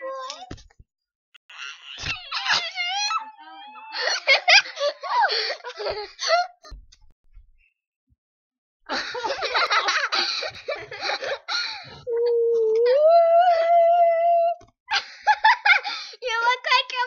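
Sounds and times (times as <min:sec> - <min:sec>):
laughter: 0:03.9 - 0:06.8, 0:08.9 - 0:11.5, 0:14.9 - 0:16.0.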